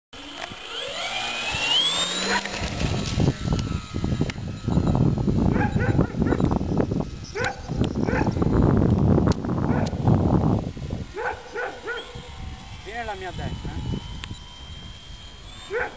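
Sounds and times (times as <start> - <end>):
electric motor and propeller whining: 0.2 - 15.9.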